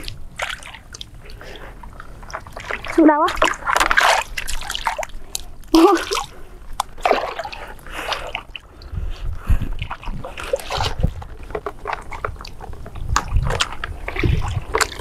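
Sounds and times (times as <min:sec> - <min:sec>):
shallow water splashing: 0:00.0 - 0:15.0
dull low thumps: 0:08.8 - 0:11.4.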